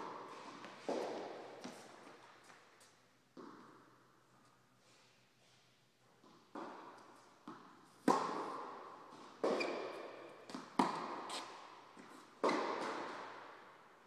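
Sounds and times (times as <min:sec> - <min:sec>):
ball bouncing on court: 0:07.5 - 0:11.6, 0:12.4 - 0:13.3
tennis ball struck by racket: 0:07.5 - 0:11.6, 0:12.4 - 0:13.5.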